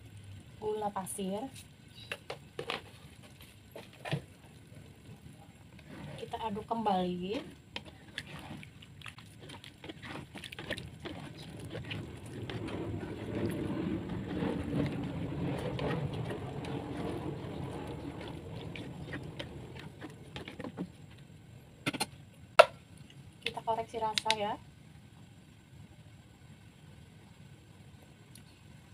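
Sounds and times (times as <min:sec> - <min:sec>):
liquid sloshing in a wok: 0:02.4 - 0:21.5
spatula scraping and tapping: 0:07.7 - 0:21.2.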